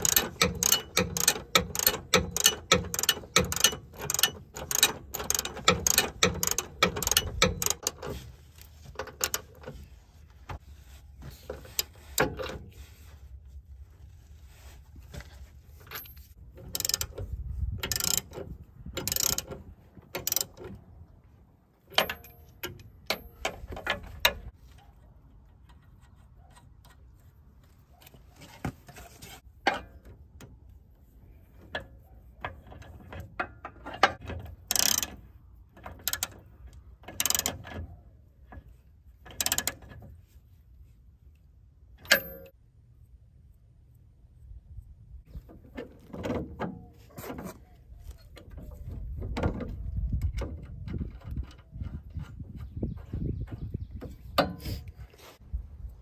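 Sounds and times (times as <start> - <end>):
ratchet wrench clicking: 0.0 - 8.0, 16.7 - 17.2, 17.8 - 18.4, 19.0 - 20.6, 34.7 - 35.2, 37.1 - 37.6.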